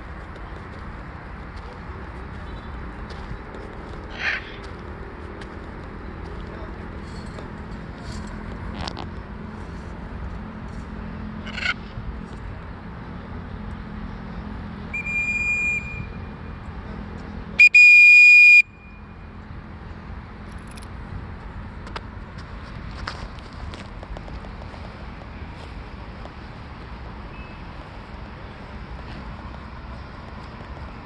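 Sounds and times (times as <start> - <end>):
whistle blasts: 14.9 - 16.3, 17.6 - 19.1.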